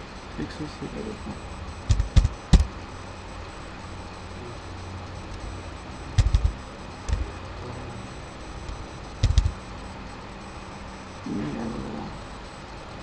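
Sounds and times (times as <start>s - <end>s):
steady electrical hum: 0.0s - 13.0s
keyboard keys clicking: 1.9s - 2.7s, 6.2s - 7.2s, 9.2s - 9.5s.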